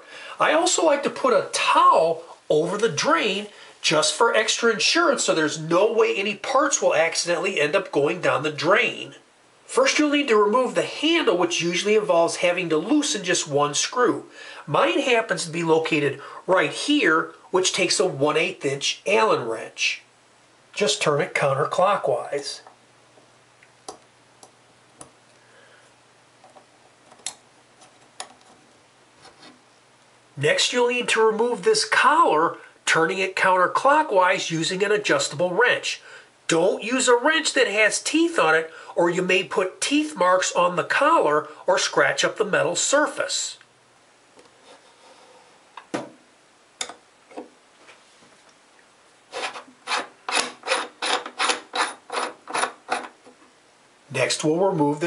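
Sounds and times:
threads scraping: 0:27.2 - 0:29.6, 0:49.3 - 0:53.5.

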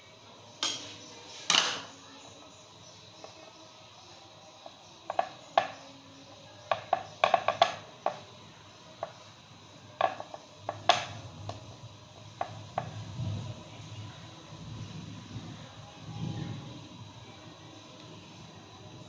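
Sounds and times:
dough tapping on ceramic plate: 0:04.6 - 0:05.8, 0:06.7 - 0:08.3, 0:10.0 - 0:11.6.

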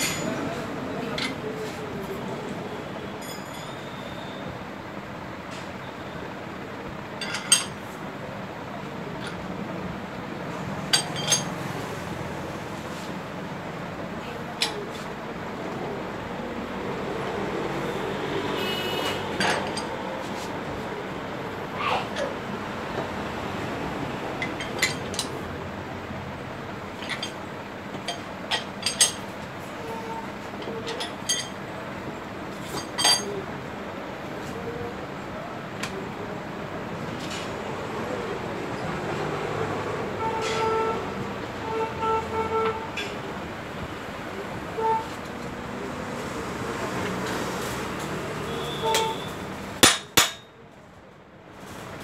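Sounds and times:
hand tools clinking on metal: 0:03.2 - 0:04.0, 0:07.2 - 0:07.8, 0:10.9 - 0:11.6, 0:27.0 - 0:29.3, 0:30.6 - 0:31.6, 0:32.6 - 0:33.4, 0:48.5 - 0:50.5.

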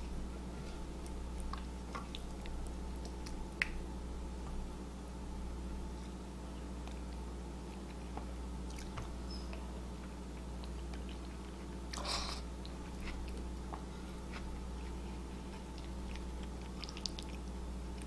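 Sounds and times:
low steady hum: 0:00.0 - 0:18.0
person chewing: 0:06.6 - 0:18.0.

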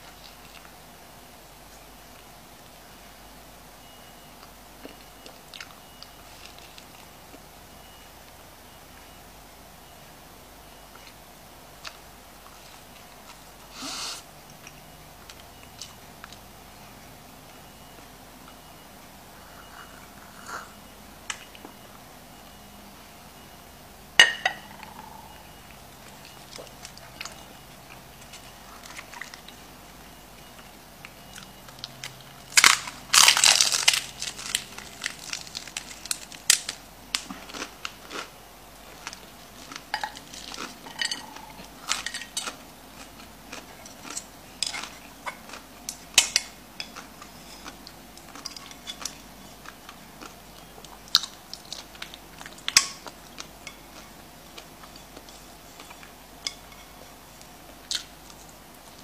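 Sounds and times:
crunchy taco shell chewing: 0:31.3 - 0:56.2.

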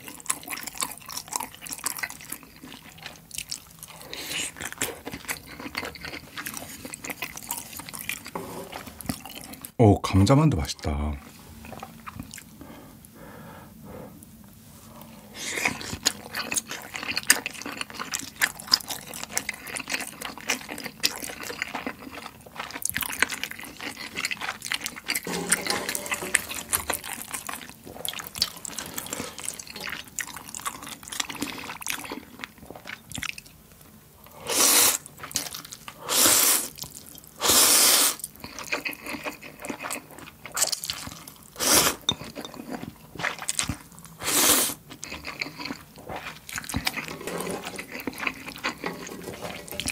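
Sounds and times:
wet chewing: 0:00.0 - 0:09.8, 0:11.6 - 0:12.6, 0:15.0 - 0:33.6, 0:34.6 - 0:49.9
slurping noodles: 0:23.2 - 0:32.3, 0:34.4 - 0:35.1, 0:36.1 - 0:36.8, 0:37.4 - 0:39.2, 0:41.6 - 0:42.1, 0:44.2 - 0:49.9.

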